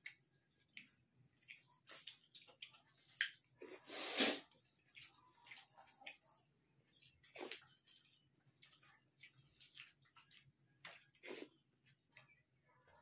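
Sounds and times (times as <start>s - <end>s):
chewing and mouth smacks: 0.0s - 13.0s
fingers mixing food on plates: 0.0s - 13.0s.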